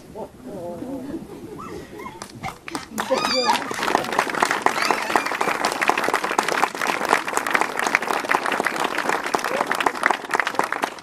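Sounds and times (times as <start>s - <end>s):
audience applauding: 2.2s - 11.0s.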